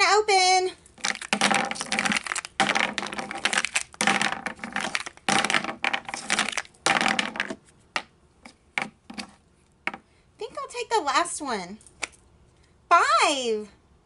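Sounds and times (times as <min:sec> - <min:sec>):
plastic boxes rattling: 0:01.0 - 0:08.1.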